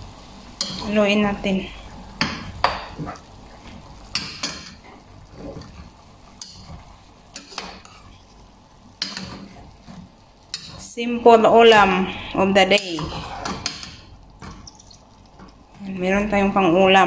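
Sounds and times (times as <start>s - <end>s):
metal spoon stirring in pot: 2.1s - 16.5s
spoon scraping and knocking pot: 2.2s - 8.1s, 9.0s - 10.9s, 12.7s - 15.6s.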